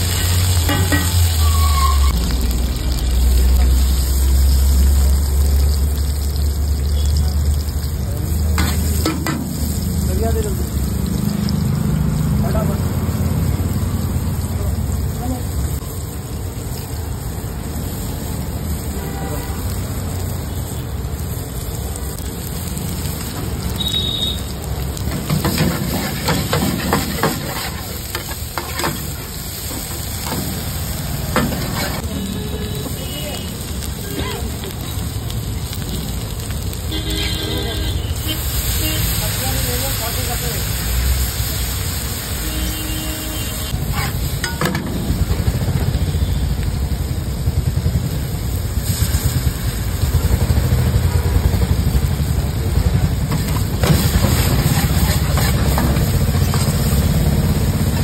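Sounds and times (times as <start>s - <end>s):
onions sizzling in hot oil: 0.0s - 58.0s
ladle scraping and clattering on pan: 0.2s - 2.1s, 25.1s - 29.2s, 31.3s - 32.0s, 53.4s - 56.8s.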